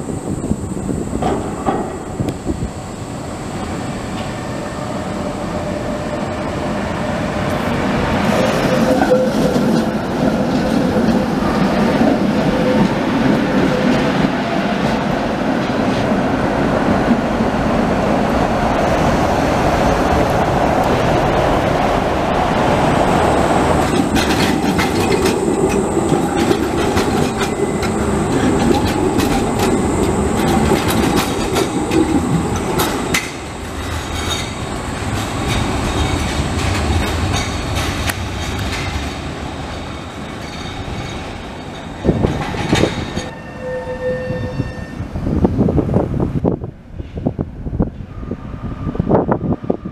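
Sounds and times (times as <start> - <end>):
tram rumbling past: 0.0 - 49.9
wheels clicking over rails: 22.6 - 43.3.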